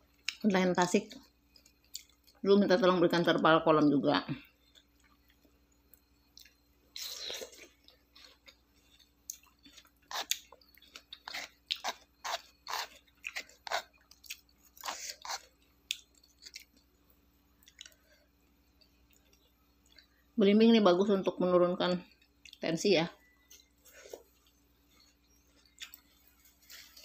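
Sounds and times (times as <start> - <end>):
person chewing crunchy fruit: 1.1 - 2.4, 4.6 - 20.3, 23.2 - 27.0.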